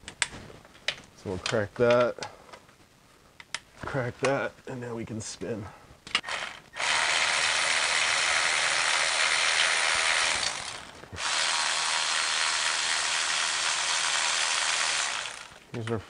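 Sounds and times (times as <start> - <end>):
electric ratchet running: 6.2 - 15.6.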